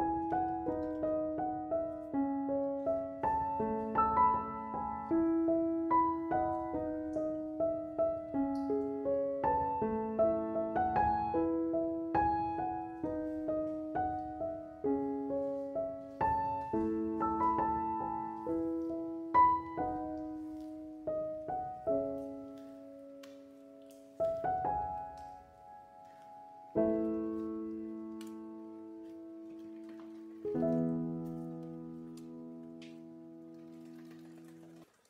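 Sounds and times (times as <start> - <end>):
solo piano playing: 0.0 - 33.9.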